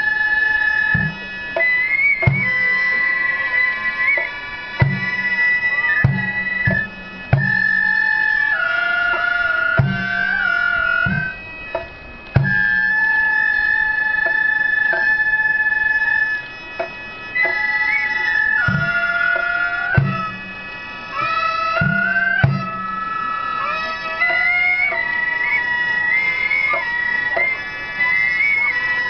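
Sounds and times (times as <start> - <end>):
deep drum strokes: 0.0 - 8.5, 9.8 - 23.2
wind instruments long held notes: 0.0 - 29.0.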